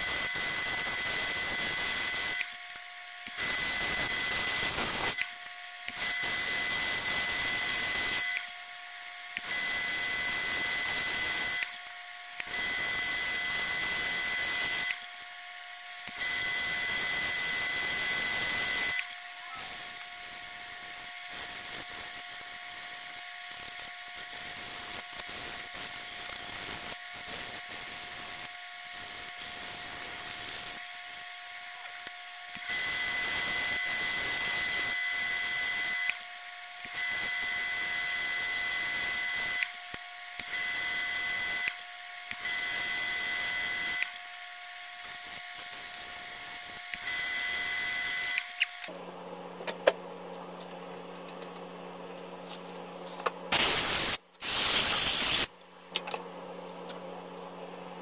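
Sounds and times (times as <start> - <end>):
wood lathe whine: 0.0 - 49.0
loud noisy bursts: 53.5 - 55.5
sandpaper rubbing on wood: 53.6 - 55.5.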